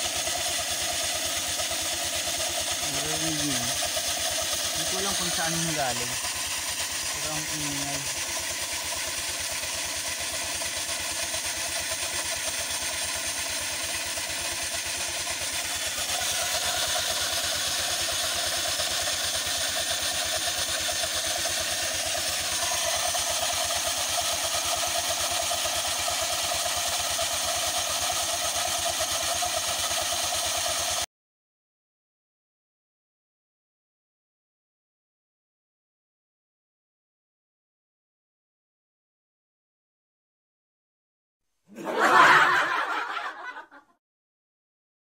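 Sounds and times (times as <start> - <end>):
transmission belt and pulleys turning: 0.0 - 31.0
scooter engine running: 0.0 - 31.1.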